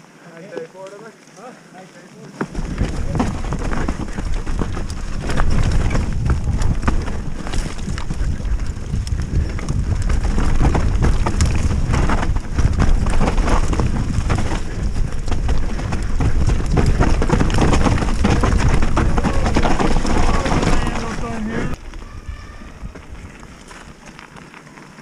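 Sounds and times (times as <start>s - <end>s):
bike tyres rolling on dirt: 0.0s - 25.0s
bike rattling and knocking: 2.4s - 21.8s
wind buffeting microphone: 2.5s - 24.0s.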